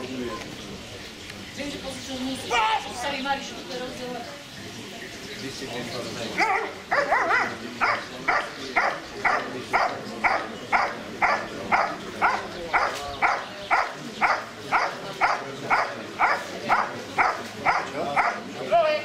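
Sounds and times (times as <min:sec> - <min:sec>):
dog barking: 0:06.4 - 0:18.4.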